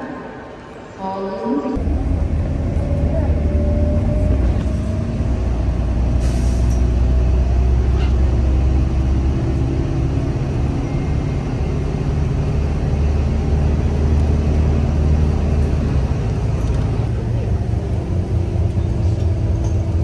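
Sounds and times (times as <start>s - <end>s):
bus engine and road rumble: 0.0s - 20.0s.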